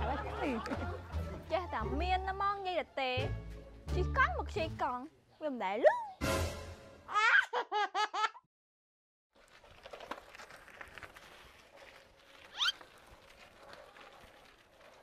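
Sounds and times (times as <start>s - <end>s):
bicycle clicking and rattling: 9.4s - 15.0s
sharp rising squeak: 12.5s - 12.8s.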